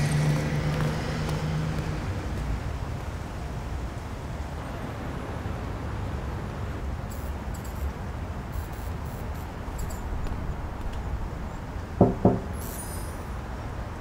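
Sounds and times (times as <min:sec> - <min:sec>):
low night street rumble: 0:00.0 - 0:14.0
sharp resonant knocks: 0:12.0 - 0:12.6.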